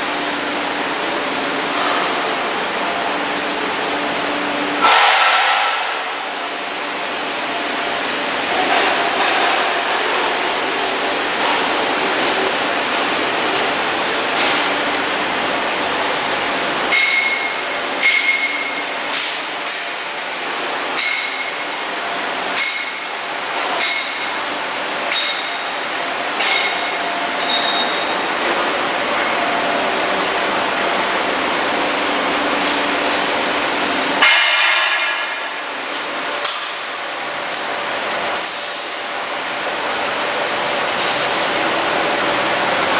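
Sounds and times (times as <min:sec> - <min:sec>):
machinery running with hum: 0:00.0 - 0:42.9
ringing metallic clinks: 0:26.5 - 0:28.1.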